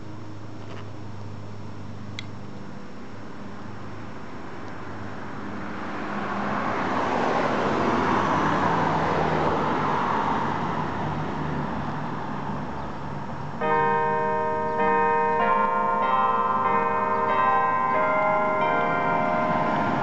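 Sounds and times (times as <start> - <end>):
car passing: 4.1 - 20.0
church bells ringing: 13.6 - 20.0.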